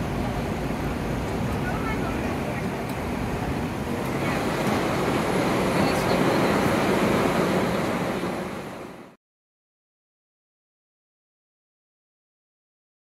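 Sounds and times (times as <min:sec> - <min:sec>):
tram wheels rumbling on rails: 0:00.0 - 0:09.2.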